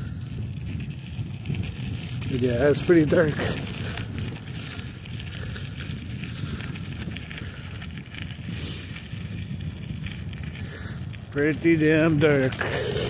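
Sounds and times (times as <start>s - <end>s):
bike clicks and rattles: 0.0s - 13.0s
wind buffeting microphone: 0.0s - 13.0s.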